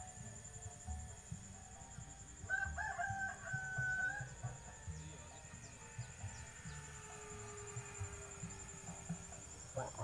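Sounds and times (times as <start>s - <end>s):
rooster crowing: 2.5s - 4.6s.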